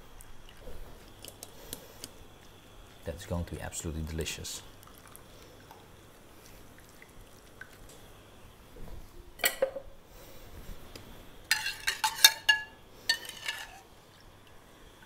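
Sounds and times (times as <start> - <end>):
metal utensils knocking on pans: 11.5 - 13.7.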